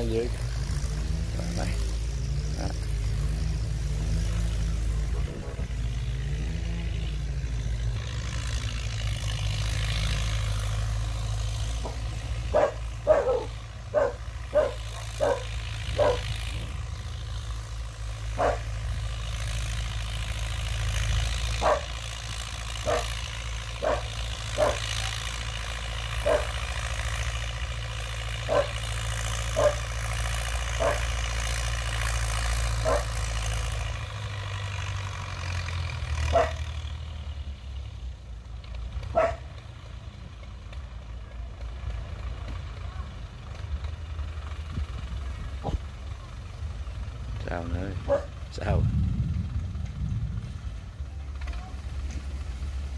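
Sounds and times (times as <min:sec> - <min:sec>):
tractor diesel engine running: 0:00.0 - 0:52.9
dog barking: 0:12.5 - 0:16.3, 0:18.4 - 0:18.7, 0:21.6 - 0:21.9, 0:22.8 - 0:23.2, 0:23.8 - 0:24.9, 0:26.2 - 0:26.6, 0:28.5 - 0:28.8, 0:29.6 - 0:29.8, 0:30.8 - 0:31.1, 0:32.8 - 0:33.1, 0:36.3 - 0:36.6, 0:39.1 - 0:39.5, 0:48.0 - 0:48.3.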